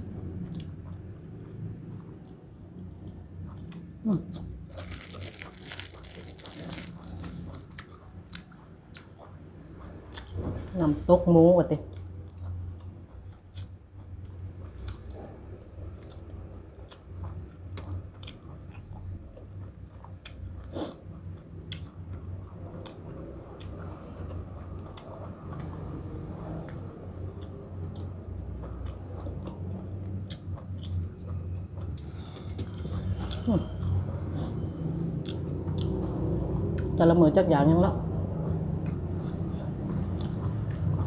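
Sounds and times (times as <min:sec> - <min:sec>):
close-up chewing and crunching: 0:00.3 - 0:10.4, 0:15.9 - 0:34.6, 0:38.7 - 0:41.0.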